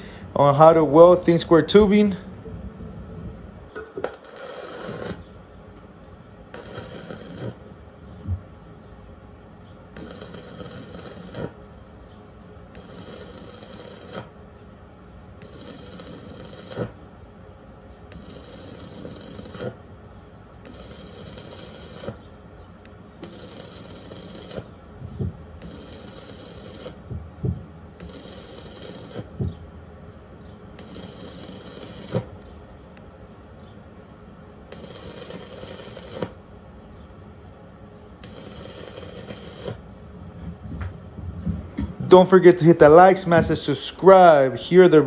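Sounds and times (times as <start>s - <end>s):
welding arc crackling: 3.8s - 5.4s, 6.5s - 7.8s, 9.9s - 11.7s, 12.7s - 14.5s, 15.4s - 17.1s, 18.1s - 20.0s, 20.6s - 22.3s, 22.9s - 29.6s, 30.7s - 32.5s, 34.6s - 36.4s, 38.2s - 39.9s.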